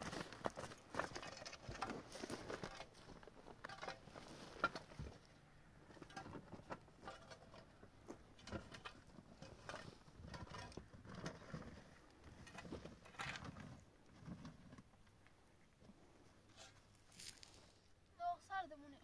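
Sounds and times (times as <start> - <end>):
light taps and scrapes: 5.9 - 17.8.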